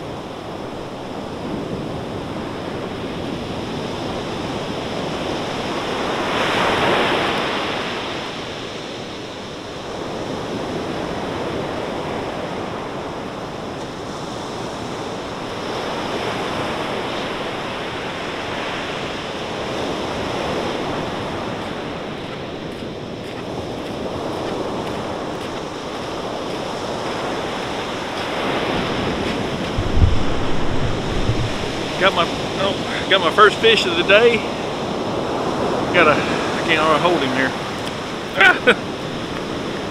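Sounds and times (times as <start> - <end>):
ocean waves breaking on beach: 0.0 - 39.9.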